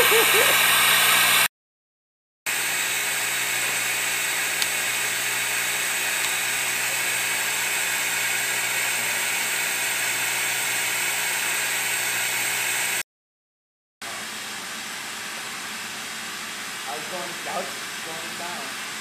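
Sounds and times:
vacuum pump running: 0.0 - 1.5, 2.5 - 13.0, 14.0 - 19.0.

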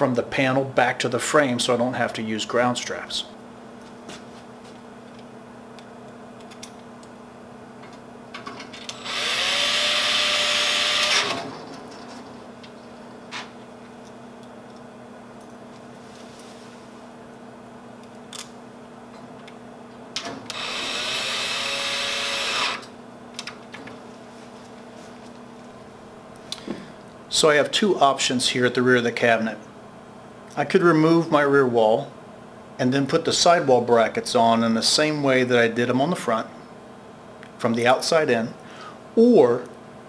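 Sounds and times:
cordless drill driving screws: 8.9 - 11.4, 20.5 - 22.9.

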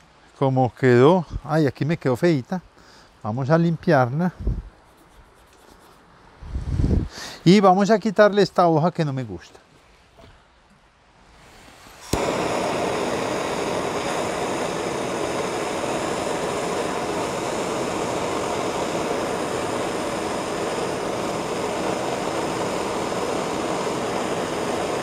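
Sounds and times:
blowtorch flame hissing: 11.3 - 25.0
blowtorch ignition click: 11.6 - 25.0.

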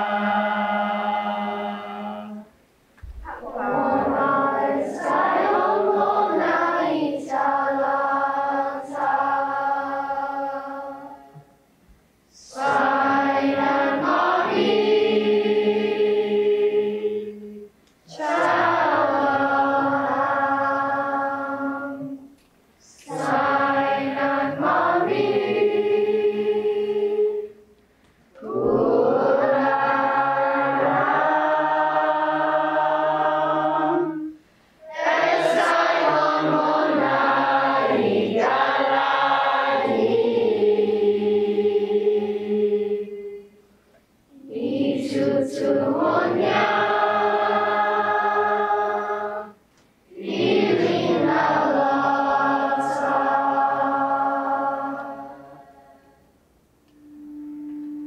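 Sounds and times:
group of voices chanting: 3.3 - 11.0, 22.8 - 27.1.

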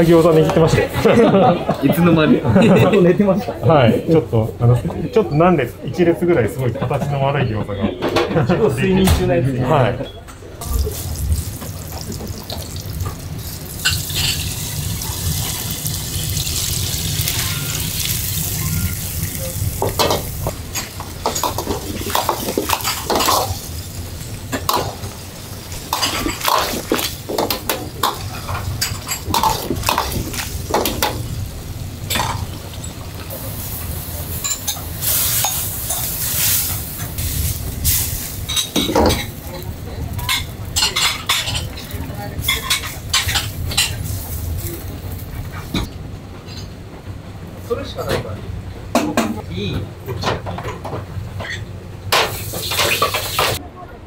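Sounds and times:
gas burner rushing: 10.6 - 45.9, 50.8 - 53.6
sauce simmering and sizzling: 10.8 - 38.5.

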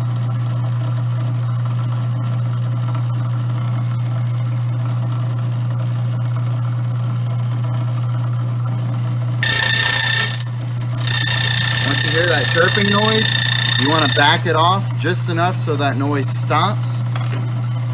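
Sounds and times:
coffee grinder motor humming: 9.4 - 14.6
harsh chirping of grinder burrs: 9.4 - 14.6.

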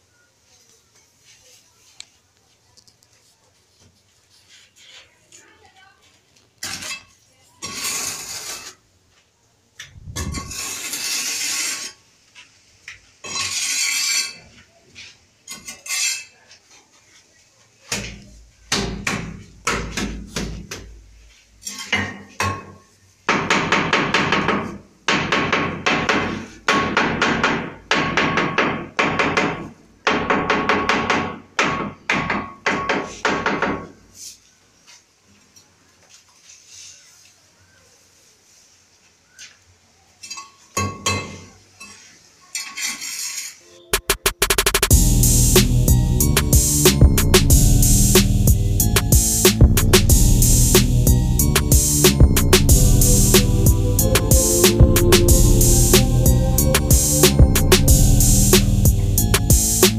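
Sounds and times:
soft rubbing strokes: 0.4 - 6.3, 36.1 - 39.4
hand tool scraping ceramic tiles: 6.6 - 8.8, 10.2 - 12.0, 13.2 - 14.5, 15.5 - 16.4, 41.8 - 44.2.

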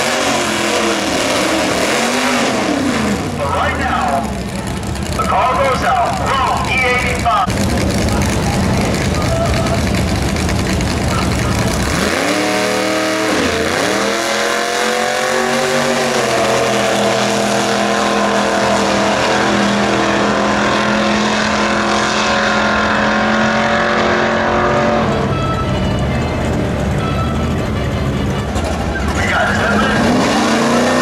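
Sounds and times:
car engine at full throttle: 0.0 - 31.0.

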